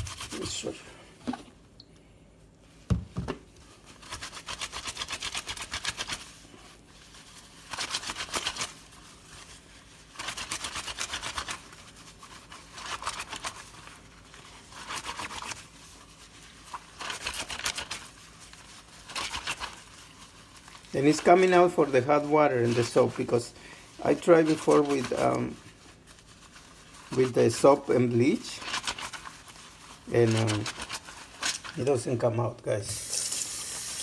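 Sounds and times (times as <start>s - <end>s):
knock: 2.9s - 3.4s
wet fabric scrubbed by hand: 3.6s - 32.0s.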